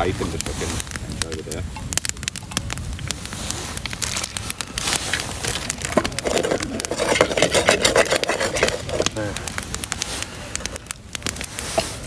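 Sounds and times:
campfire crackling and popping: 0.0s - 12.0s
sausages sizzling in frying pan: 0.0s - 12.0s.

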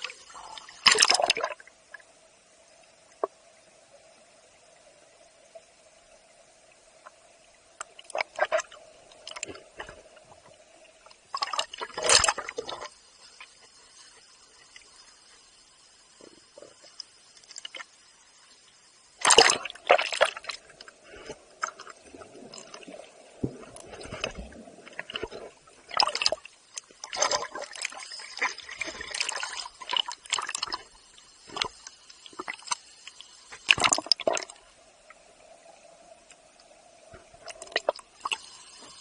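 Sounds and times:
water sloshing and splashing: 0.0s - 1.6s, 7.9s - 10.5s, 11.1s - 13.0s, 19.2s - 34.7s.

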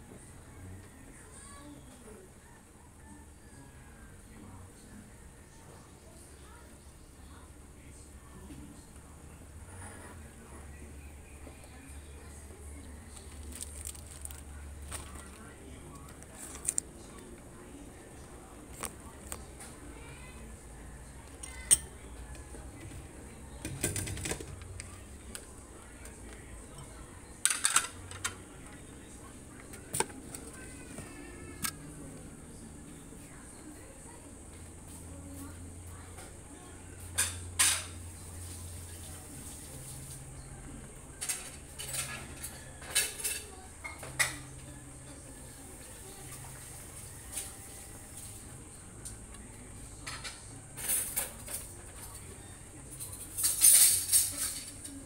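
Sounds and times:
faint low background hum: 0.0s - 55.0s
kitchenware clinking: 21.4s - 22.0s, 26.7s - 28.4s.

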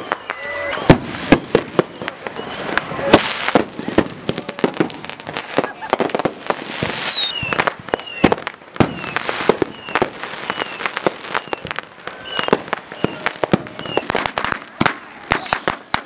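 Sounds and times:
fireworks bangs and pops: 0.0s - 16.0s
whistling fireworks: 0.0s - 16.0s.

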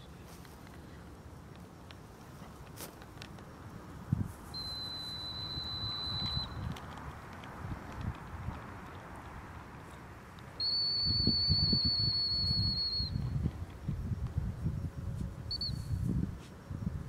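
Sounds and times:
short whistle pip: 4.5s - 6.7s, 10.6s - 13.2s, 15.5s - 16.0s
high dog whistle blast: 4.6s - 6.6s, 10.6s - 13.2s.

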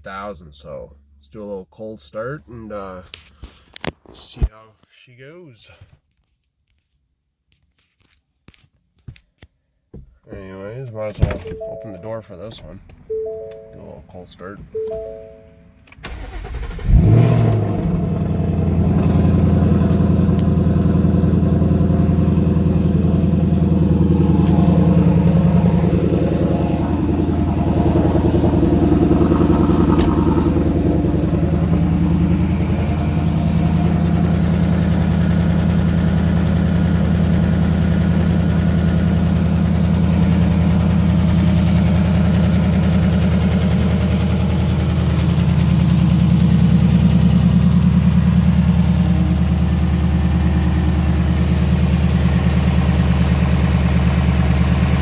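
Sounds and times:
car engine fast idle: 16.0s - 55.0s.

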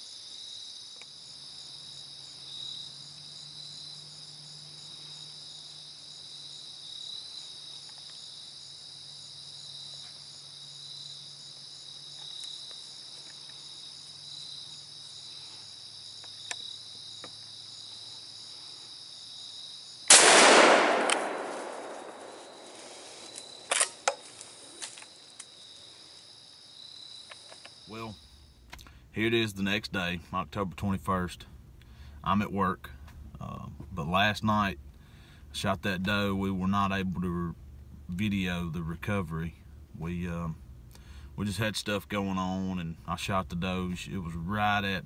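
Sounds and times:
crickets chirping: 0.0s - 45.0s
sharp clicks: 20.1s - 22.2s
loud gunshot: 20.1s - 22.7s.

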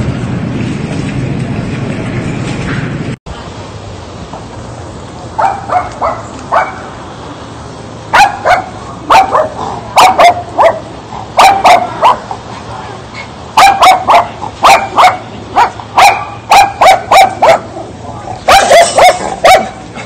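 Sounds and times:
small dog barking: 5.4s - 6.8s, 8.1s - 12.3s, 13.6s - 17.7s, 18.5s - 19.8s.

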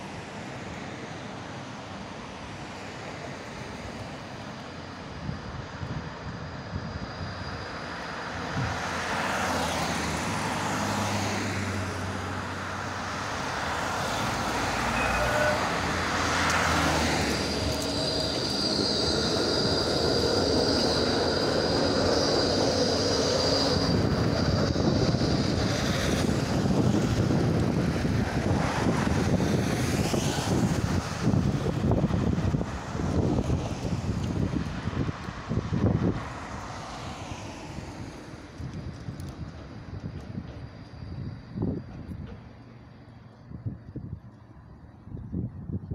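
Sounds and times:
tram rumbling past: 0.0s - 45.1s
passing car traffic: 0.0s - 45.5s
high steady whine: 14.2s - 29.5s.

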